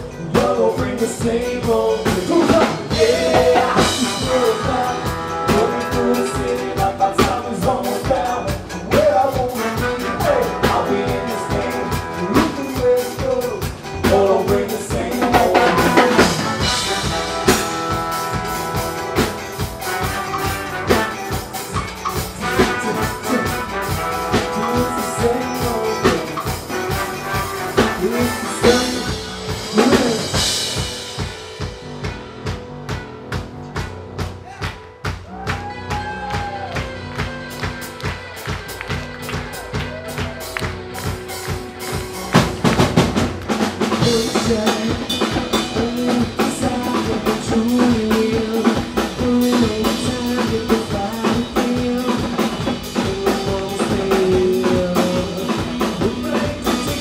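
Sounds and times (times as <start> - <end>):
person singing: 0.0 - 19.4, 20.0 - 30.8, 44.0 - 57.0
drum kit beat: 0.0 - 57.0
electric guitar: 0.0 - 57.0
trombone: 0.2 - 32.0.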